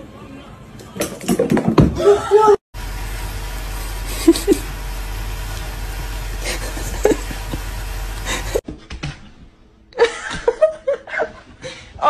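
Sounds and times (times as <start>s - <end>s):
low hum: 2.8s - 8.6s.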